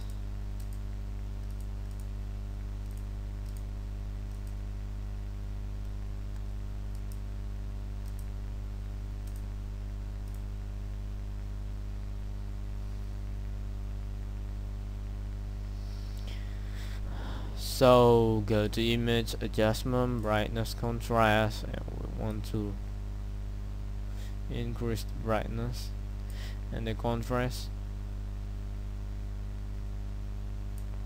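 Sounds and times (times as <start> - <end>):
computer mouse clicks: 0.0 - 0.8, 1.4 - 2.1, 2.8 - 4.6, 5.8 - 7.2, 8.0 - 8.3, 9.2 - 9.5, 10.2 - 10.4
electrical hum: 0.0 - 31.0.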